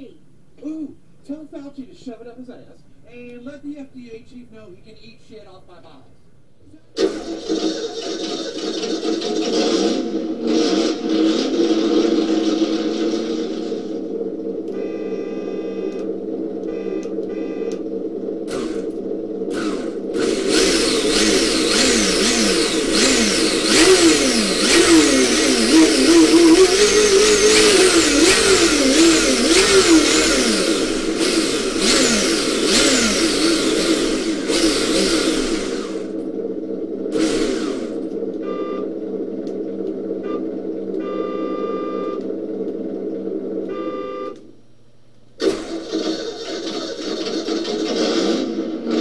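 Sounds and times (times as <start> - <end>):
simulated engine revs from speaker: 8.8 - 44.3
short beeps: 16.7 - 17.8, 38.4 - 39.0, 40.2 - 42.2, 43.6 - 44.4.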